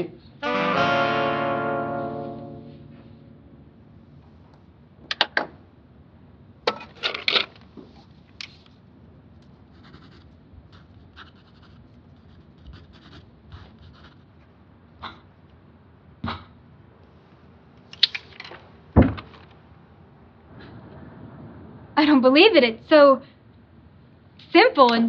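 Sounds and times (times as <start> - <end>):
pen scratching on paper: 9.7 - 14.2.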